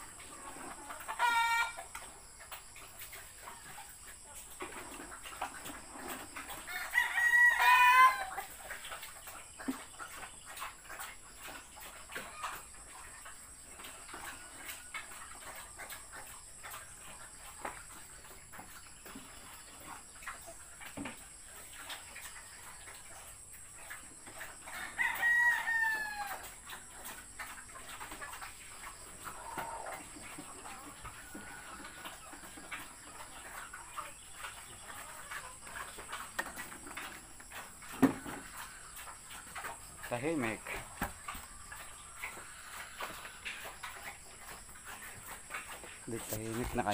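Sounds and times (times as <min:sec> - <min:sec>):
chickens clucking: 0:00.0 - 0:46.9
rooster crowing: 0:06.7 - 0:08.4, 0:24.7 - 0:26.4.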